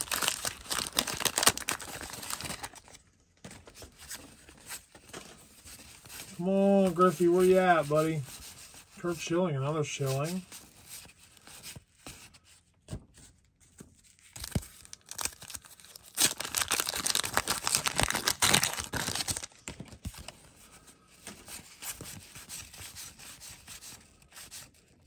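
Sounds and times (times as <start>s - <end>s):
cards rustling and clicking: 0.0s - 9.2s, 10.0s - 25.0s
wax-paper wrapper tearing and crinkling: 0.0s - 9.3s, 13.7s - 20.5s.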